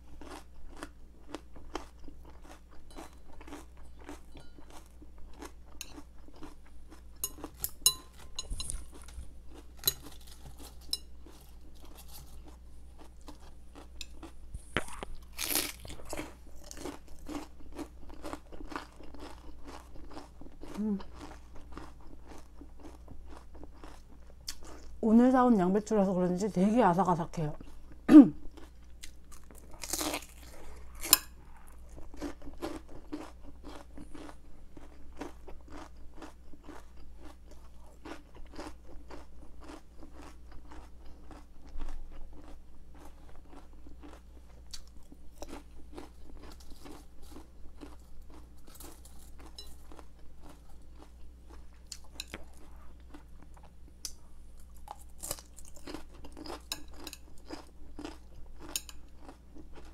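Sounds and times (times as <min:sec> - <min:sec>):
crunching raw cabbage: 0:08.6 - 0:24.9, 0:28.5 - 0:59.9.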